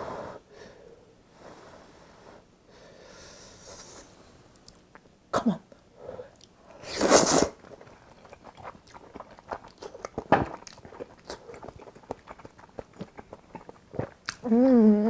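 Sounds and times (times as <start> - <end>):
loud slurp of noodles: 6.8 - 7.6
chewing with wet mouth clicks: 7.6 - 14.5.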